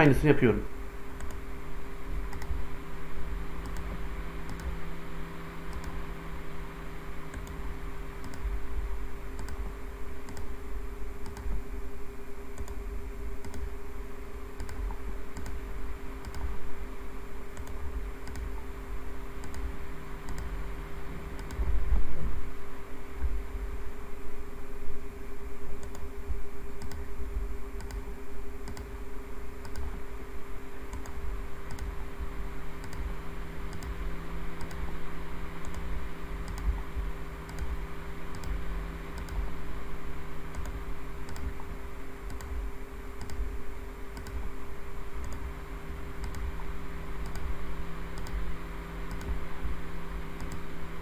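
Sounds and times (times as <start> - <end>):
lower electrical hum: 0.0 - 51.0
steady electrical hum: 0.0 - 51.0
mouse and keyboard clicks: 2.3 - 2.6, 3.6 - 4.8, 5.7 - 6.0, 9.4 - 9.6, 11.2 - 11.6, 16.2 - 16.5, 17.6 - 18.5, 26.8 - 27.1, 27.8 - 29.0, 29.6 - 30.0, 30.9 - 31.9, 33.7 - 34.0, 34.6 - 34.8, 35.6 - 36.8, 37.5 - 38.6, 39.2 - 39.4, 40.5 - 41.7, 42.3 - 42.6, 43.2 - 43.5, 44.2 - 44.4, 45.2 - 45.5, 46.2 - 46.5, 47.2 - 47.5, 48.1 - 48.4, 49.1 - 49.4, 50.4 - 50.7.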